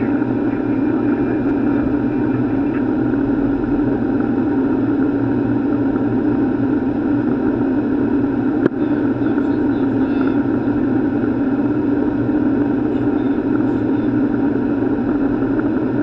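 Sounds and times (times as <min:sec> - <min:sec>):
airplane cockpit airflow and engine hum: 0:00.0 - 0:16.0.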